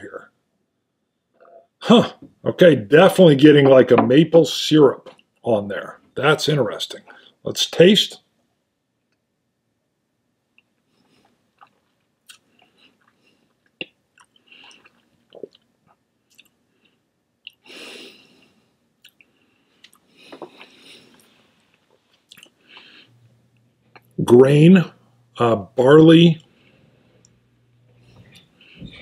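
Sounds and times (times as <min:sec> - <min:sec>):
wet mouth clicks and lip smacks: 0:10.6 - 0:15.7, 0:16.3 - 0:16.6, 0:17.4 - 0:17.7, 0:19.0 - 0:21.3
man sipping: 0:10.9 - 0:15.7, 0:16.3 - 0:23.2.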